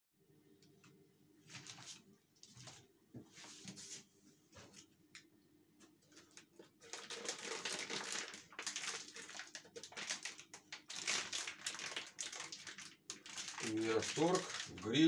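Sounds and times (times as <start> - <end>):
plastic packaging crinkling: 6.1 - 15.0.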